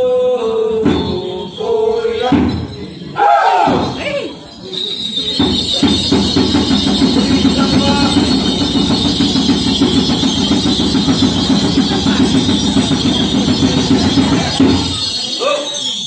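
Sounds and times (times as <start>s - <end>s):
rapid steady drumming: 5.0s - 15.4s.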